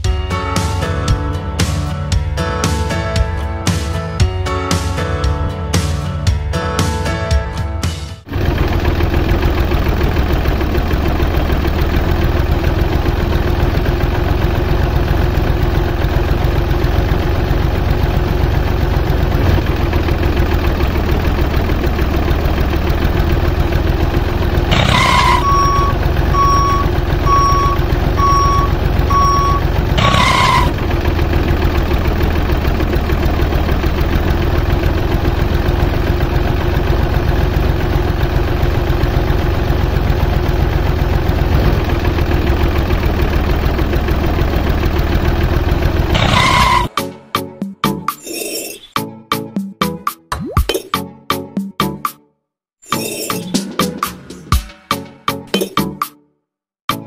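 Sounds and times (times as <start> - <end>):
miniature tractor engine drone: 8.3 - 47.0
reversing beeper: 24.7 - 30.8, 46.2 - 46.9.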